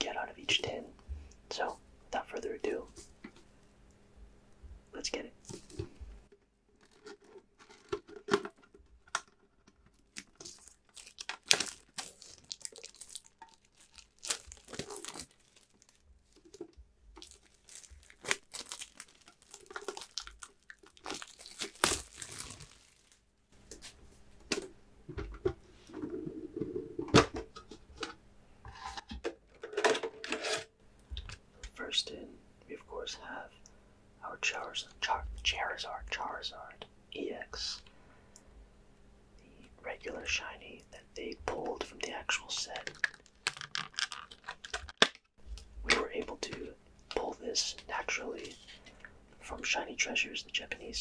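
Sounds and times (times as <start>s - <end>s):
plastic shrink wrap tearing: 10.1s - 23.3s, 42.8s - 45.2s.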